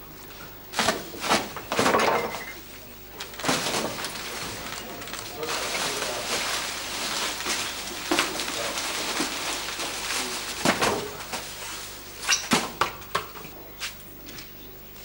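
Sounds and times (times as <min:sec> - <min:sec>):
plastic bag rustling: 0:03.2 - 0:12.6.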